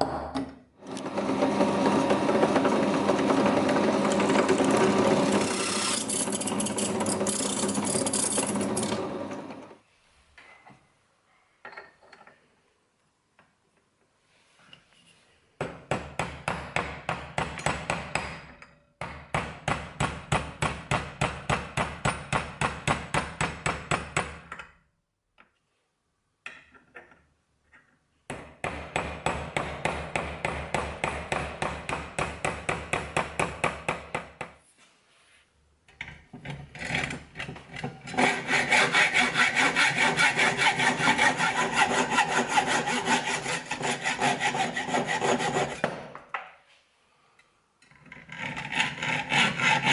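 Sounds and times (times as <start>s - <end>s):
hacksaw cutting brass: 3.0s - 9.2s, 38.1s - 46.0s, 48.6s - 49.9s.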